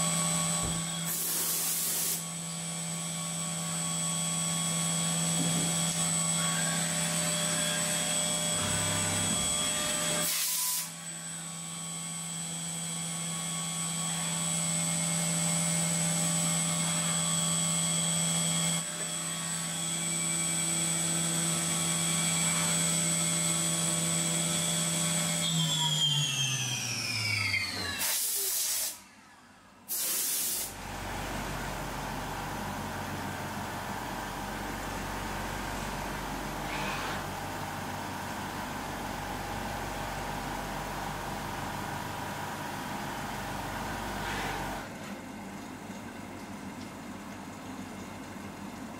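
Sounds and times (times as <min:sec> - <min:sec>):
coolant mist hissing: 0:01.1 - 0:02.2.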